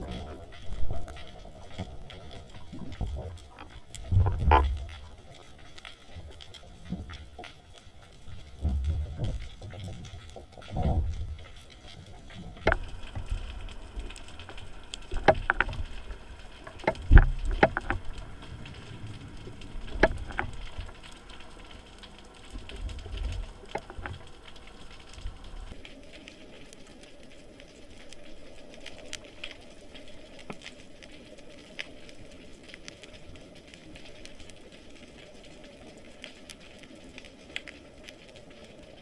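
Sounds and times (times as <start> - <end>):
underwater rumble of moving water: 0.0 - 39.0
sharp clicks and knocks: 12.3 - 13.5, 14.1 - 16.0, 16.6 - 18.2, 19.8 - 20.9.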